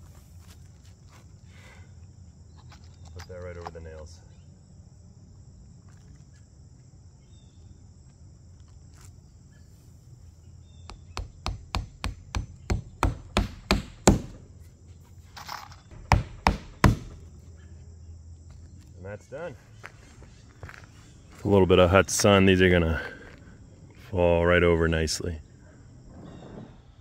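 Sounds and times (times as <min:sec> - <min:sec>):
hammer driving nails: 0:10.9 - 0:14.4, 0:15.9 - 0:17.2.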